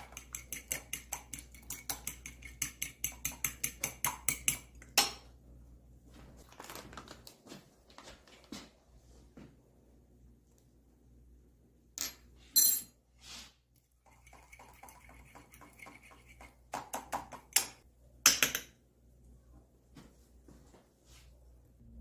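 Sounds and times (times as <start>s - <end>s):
fork whisking eggs in a bowl: 0.0s - 5.0s, 13.8s - 17.8s.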